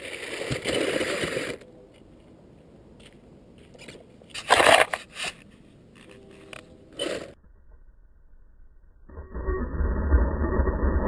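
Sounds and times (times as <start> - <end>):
rc buggy crunching into dirt: 0.0 - 1.6, 3.8 - 5.4
gravel clicks: 0.0 - 7.4.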